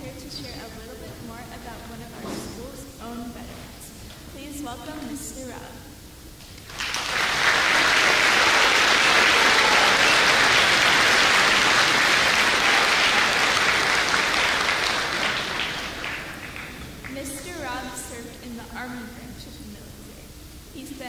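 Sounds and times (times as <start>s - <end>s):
large audience applauding: 6.6s - 17.4s.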